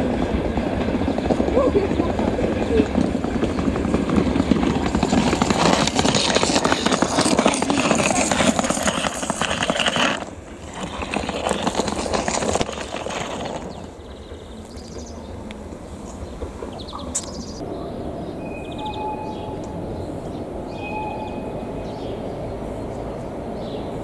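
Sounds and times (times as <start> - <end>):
train wheels clattering: 0.0 - 17.6.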